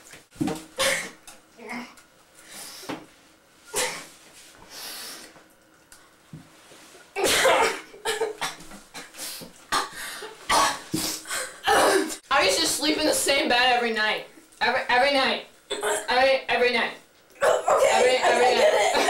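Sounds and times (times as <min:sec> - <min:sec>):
person coughing: 0:00.8 - 0:01.2, 0:07.2 - 0:09.1, 0:09.7 - 0:12.2, 0:17.4 - 0:19.0
person sneezing: 0:00.8 - 0:01.2, 0:03.7 - 0:04.2, 0:07.2 - 0:12.2.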